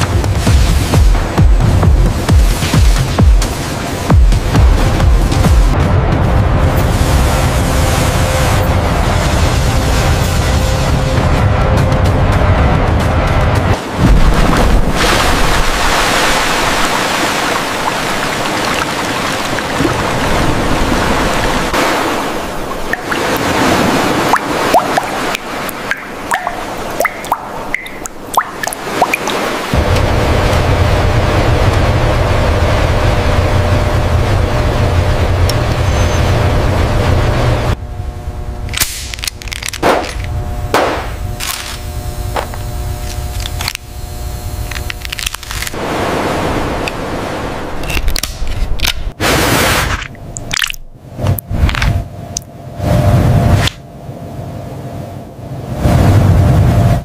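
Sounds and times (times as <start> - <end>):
water pouring and splashing: 0.0 - 5.8, 13.8 - 30.0, 44.8 - 51.9
loud rumbling noise: 0.0 - 57.0
steady hum: 0.0 - 57.0
water dripping: 15.9 - 20.6, 22.4 - 29.7.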